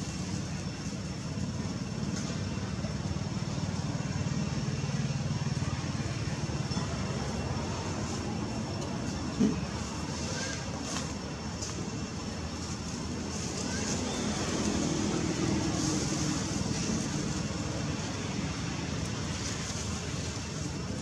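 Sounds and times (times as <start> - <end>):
engine rumbling: 0.0 - 21.0.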